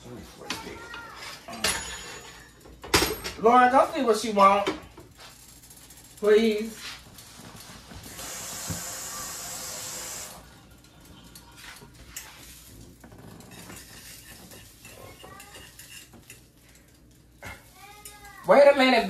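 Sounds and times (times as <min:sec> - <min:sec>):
kitchen utensils clattering: 0:00.5 - 0:05.0, 0:11.1 - 0:16.8
sink tap running: 0:08.0 - 0:10.5.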